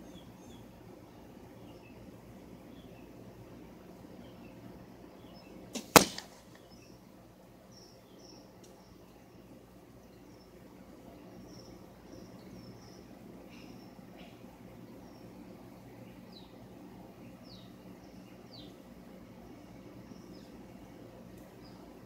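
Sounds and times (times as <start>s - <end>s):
bow shot snap: 5.7s - 6.7s
arrow striking target: 5.8s - 6.6s.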